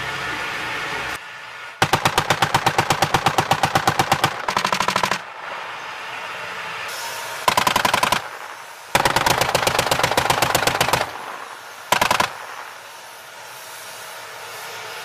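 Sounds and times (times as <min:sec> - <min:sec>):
steady background noise: 0:00.0 - 0:15.0
machine-gun fire: 0:01.8 - 0:05.3, 0:07.5 - 0:12.6.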